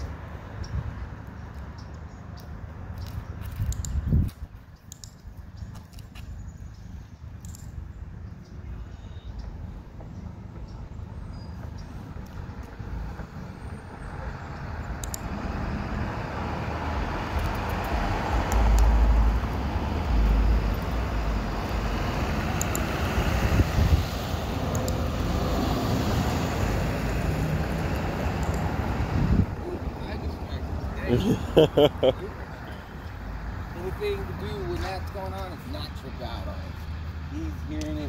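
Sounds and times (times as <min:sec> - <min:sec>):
heavy truck passing: 0:11.9 - 0:35.0.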